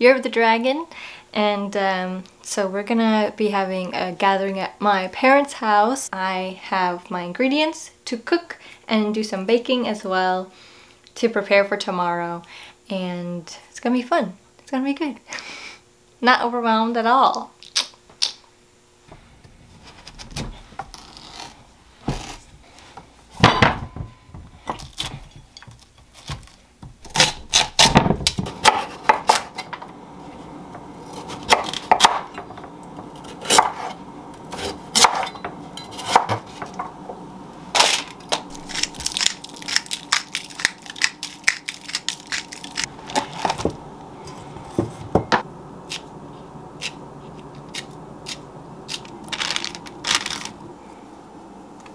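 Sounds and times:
steady hum: 18.5s - 51.9s
utensils scraping metal bowls: 33.1s - 36.8s.

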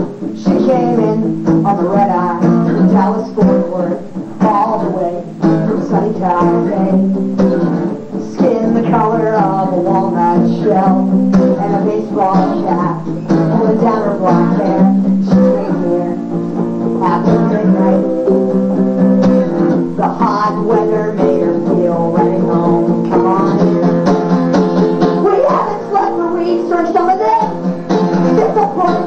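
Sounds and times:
strummed acoustic guitar: 0.0s - 29.0s.

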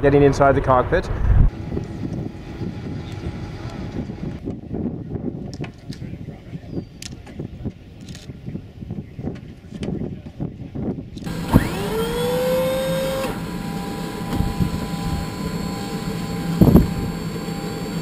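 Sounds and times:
wind rumble: 0.0s - 12.3s, 16.4s - 17.3s
steady hum: 0.7s - 4.8s, 11.3s - 18.0s
jet engine starter whine: 1.5s - 4.4s, 11.2s - 18.0s.

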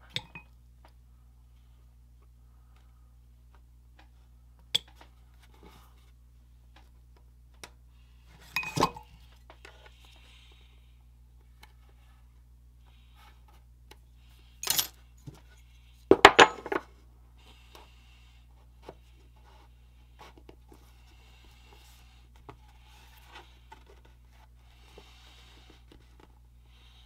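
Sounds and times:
metal tools clanking on wood: 14.6s - 15.0s, 16.1s - 16.8s
faint rubbing and handling: 18.4s - 26.5s.

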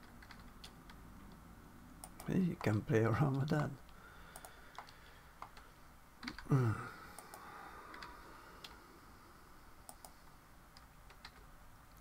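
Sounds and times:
keyboard and mouse clicks: 0.0s - 1.4s, 2.0s - 6.5s, 7.1s - 8.8s, 9.8s - 12.0s
man humming: 6.4s - 7.1s.

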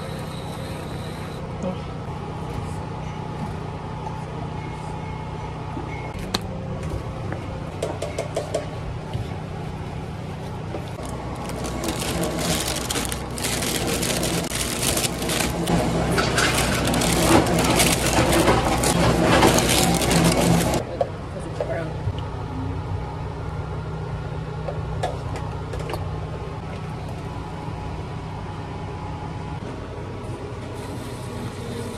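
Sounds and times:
plastic bag crinkling: 11.0s - 20.8s.

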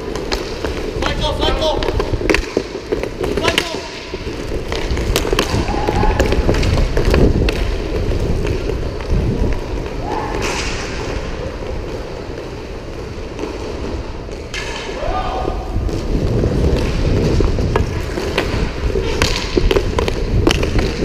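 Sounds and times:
hockey sticks clacking on puck: 0.0s - 15.1s, 15.8s - 21.0s
skate wheels rolling on plastic floor: 0.0s - 21.0s.

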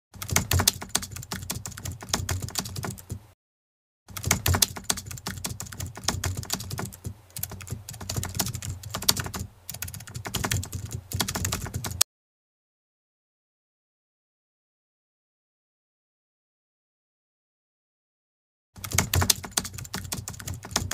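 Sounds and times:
keyboard typing: 0.2s - 3.3s, 4.1s - 12.0s, 18.8s - 20.9s.

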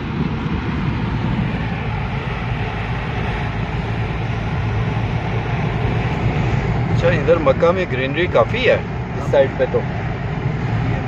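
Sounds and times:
car engine rumble and hum: 0.0s - 11.0s
tyres on road: 0.0s - 11.0s.

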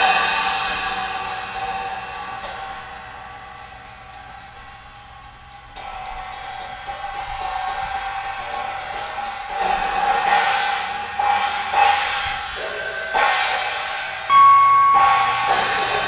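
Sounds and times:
steady ringing tone: 0.0s - 11.7s, 14.1s - 16.0s
ringing cymbal-like washes: 0.0s - 16.0s
bell-like strike: 14.3s - 16.0s.

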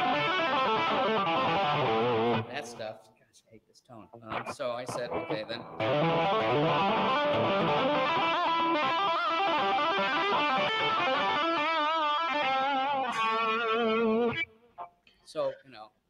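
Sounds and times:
distorted electric guitar lead: 0.0s - 2.6s, 4.3s - 14.5s.

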